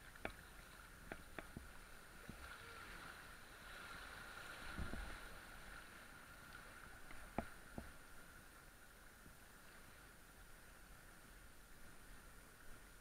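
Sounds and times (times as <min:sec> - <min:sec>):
low splash: 0:00.0 - 0:08.3
river water splashing: 0:00.0 - 0:13.0.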